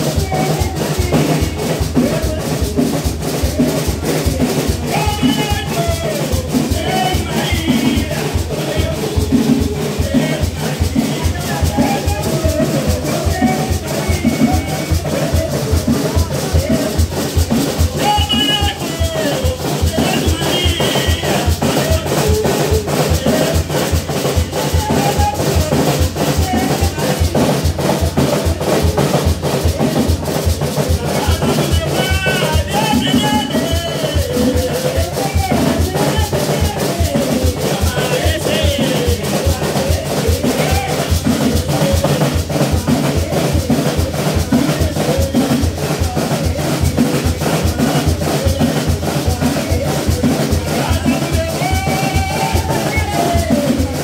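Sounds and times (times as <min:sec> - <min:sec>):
person chanting through loudspeaker: 0:00.0 - 0:54.0
steady drumbeat: 0:00.0 - 0:54.0.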